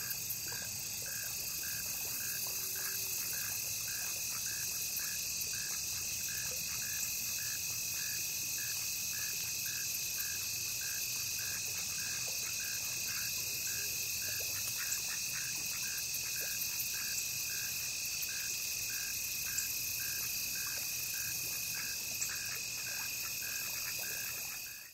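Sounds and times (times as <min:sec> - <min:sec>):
insect drone: 0:00.0 - 0:24.9
short repeating insect call: 0:00.0 - 0:24.9.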